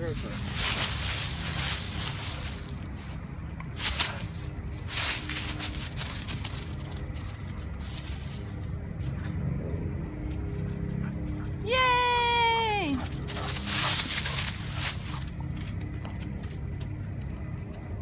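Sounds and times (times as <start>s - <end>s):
dry leaves crunching underfoot: 0.0s - 9.1s, 12.1s - 16.0s
steady low rumble: 0.0s - 18.0s.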